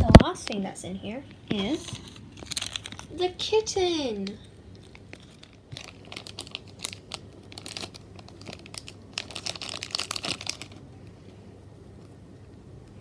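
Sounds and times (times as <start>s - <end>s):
plastic bag crinkling: 1.5s - 11.1s.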